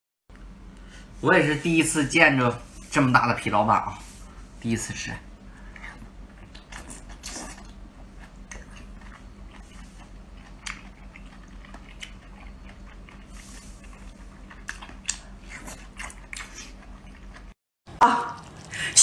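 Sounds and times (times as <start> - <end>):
wet chewing and sucking: 5.6 - 17.6.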